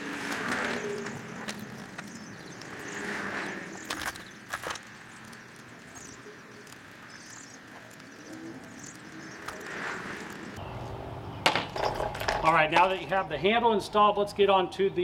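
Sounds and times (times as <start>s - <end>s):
dove cooing: 0.0s - 4.4s
small birds chirping: 0.0s - 11.4s.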